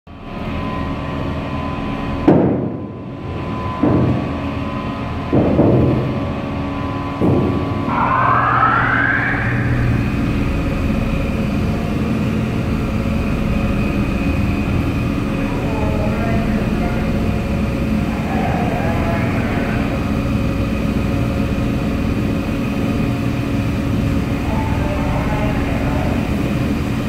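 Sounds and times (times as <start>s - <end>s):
mooring winch humming: 3.0s - 27.0s
loud machinery surges: 6.0s - 27.0s
rising whine: 6.0s - 27.0s.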